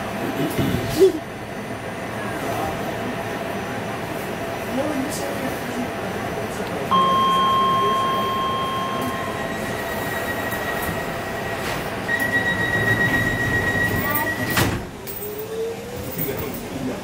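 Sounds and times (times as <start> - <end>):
higher steady tone: 6.9 - 12.8
loud high steady tone: 6.9 - 14.6.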